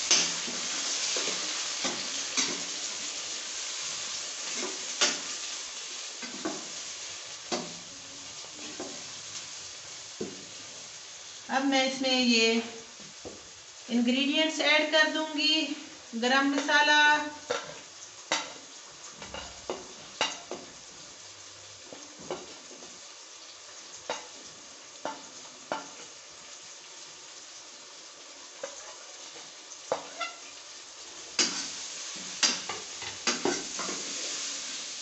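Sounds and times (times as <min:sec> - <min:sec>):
food sizzling in a frying pan: 0:00.0 - 0:35.0.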